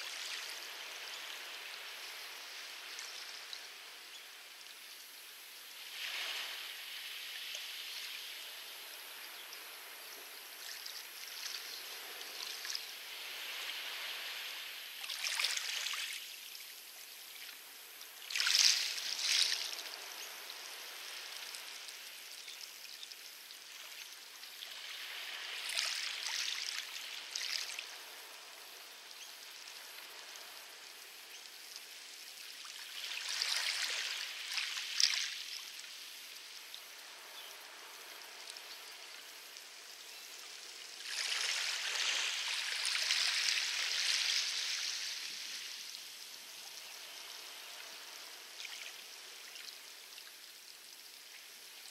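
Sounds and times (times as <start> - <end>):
waves washing onto pebbles: 24.5 - 30.8, 36.9 - 45.9.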